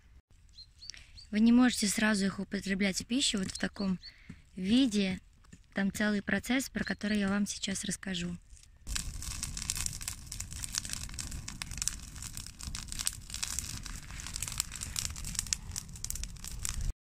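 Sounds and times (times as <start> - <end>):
bonfire crackling and popping: 3.0 - 5.8, 8.4 - 17.0
low rumble: 8.9 - 17.0.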